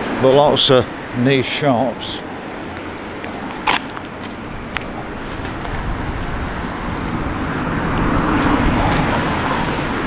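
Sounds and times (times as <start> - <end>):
vehicle passing close: 2.0 - 10.0.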